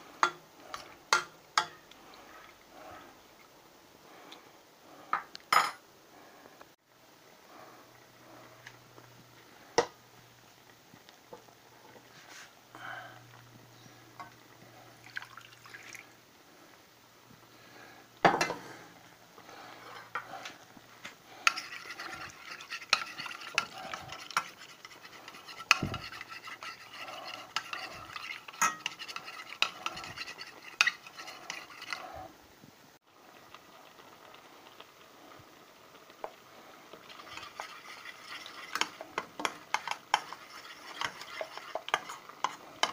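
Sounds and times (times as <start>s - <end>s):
metal spoon stirring in saucepan: 0.2s - 3.2s, 19.6s - 20.7s, 21.3s - 32.3s, 36.9s - 42.9s.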